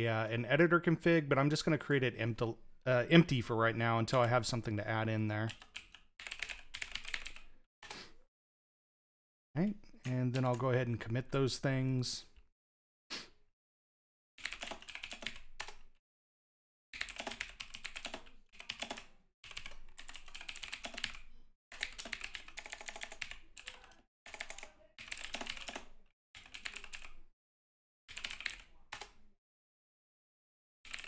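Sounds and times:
computer keyboard typing: 0:05.4 - 0:07.5, 0:14.4 - 0:15.9, 0:17.0 - 0:27.2, 0:28.1 - 0:29.2.

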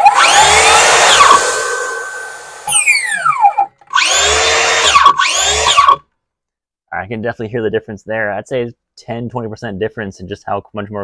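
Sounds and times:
circular saw motor whining: 0:00.0 - 0:06.0
circular saw motors spinning down: 0:00.0 - 0:06.0.

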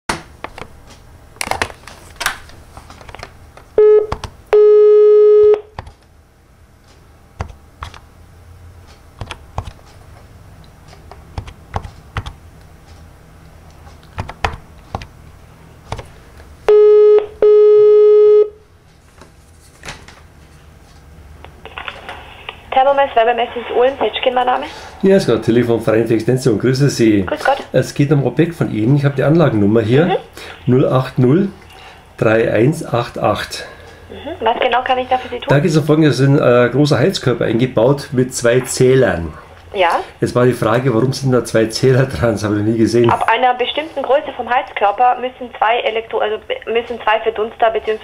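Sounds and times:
phone line tones: 0:03.8 - 0:05.7, 0:16.7 - 0:18.6.

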